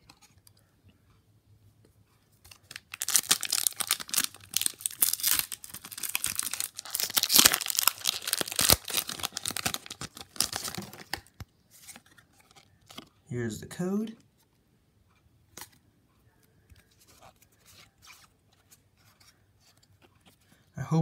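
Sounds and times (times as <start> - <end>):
foil wrapper tearing and crinkling: 2.6 - 11.3.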